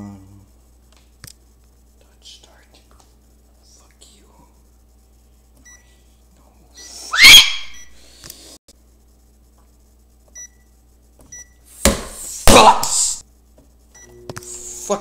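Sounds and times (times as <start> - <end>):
microwave keypad beeps: 10.4 - 10.6, 11.3 - 11.6.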